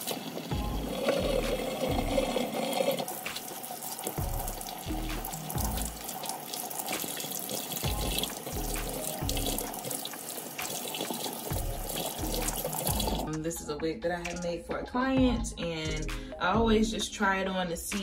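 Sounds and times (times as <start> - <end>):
faucet running into metal sink: 0.0 - 13.3
music with deep bass beat: 0.5 - 2.5, 4.2 - 6.0, 7.8 - 9.8, 11.5 - 17.2.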